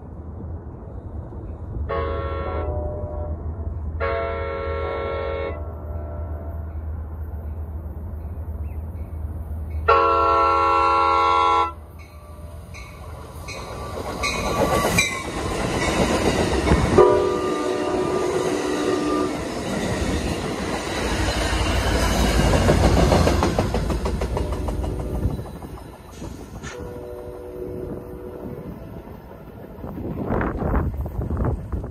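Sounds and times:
rumble of train cars: 0.0s - 31.9s
train horn chord: 1.9s - 6.8s, 9.9s - 11.8s, 16.9s - 19.5s, 26.6s - 28.8s
train wheels clicking over rail joints: 12.0s - 17.1s, 19.4s - 27.4s.

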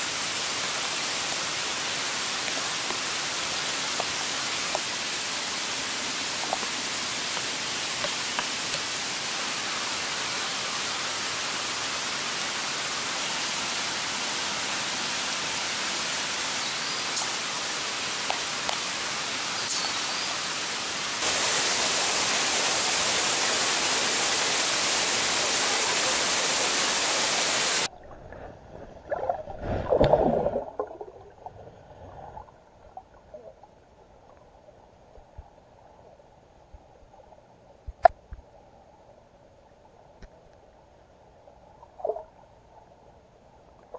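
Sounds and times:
falling water hiss: 0.0s - 27.9s
underwater gurgling rush: 27.8s - 33.2s.

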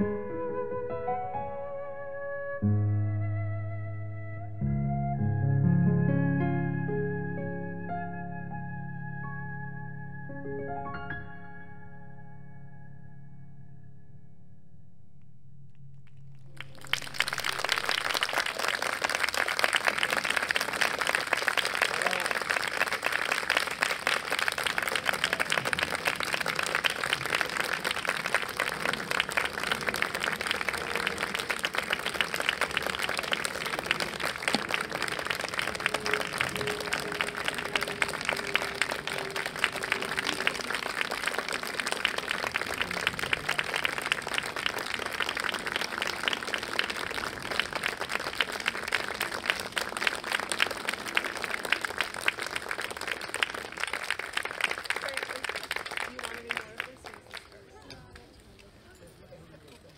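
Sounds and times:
audience applauding: 16.4s - 58.4s.

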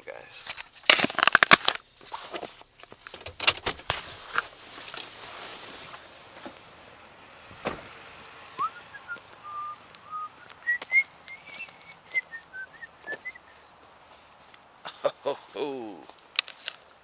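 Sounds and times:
short whistled notes: 8.6s - 13.5s
footstep clicks: 8.6s - 14.7s.

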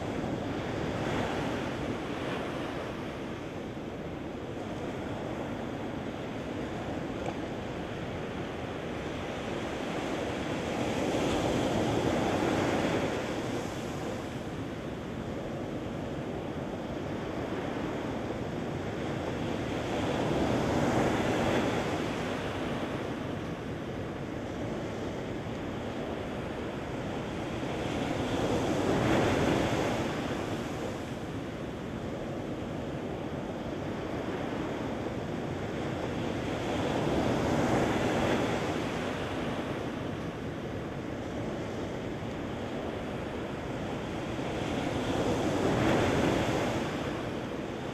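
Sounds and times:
waves breaking on a beach: 0.0s - 47.9s.

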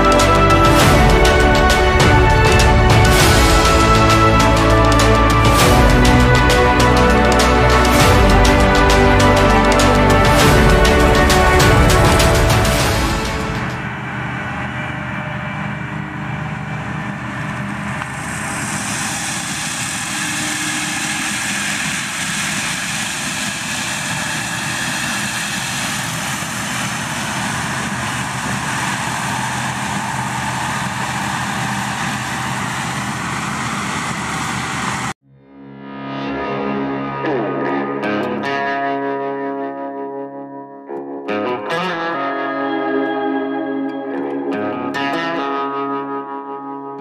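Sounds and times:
diesel machinery engine running: 0.0s - 35.2s
rushing hiss: 18.1s - 35.1s.

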